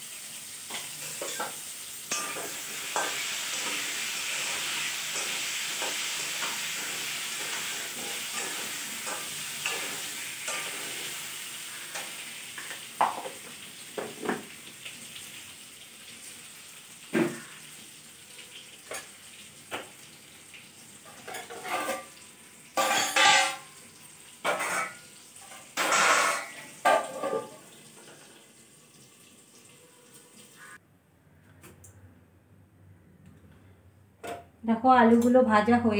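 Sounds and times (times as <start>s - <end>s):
potatoes sizzling in oil: 0.0s - 30.8s
spatula scraping and clattering: 0.7s - 11.2s, 21.0s - 22.2s, 22.8s - 23.7s, 24.4s - 27.6s.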